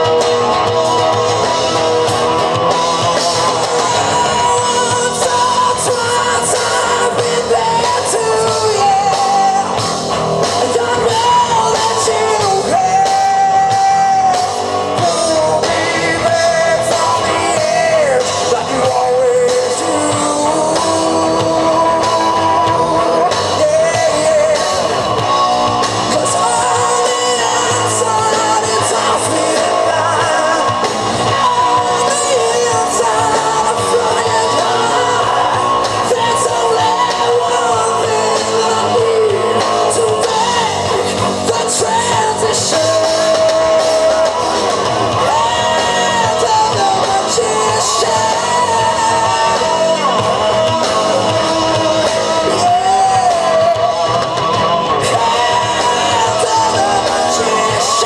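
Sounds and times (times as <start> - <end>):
rock band playing: 0.0 - 58.0
singer singing: 0.0 - 58.0.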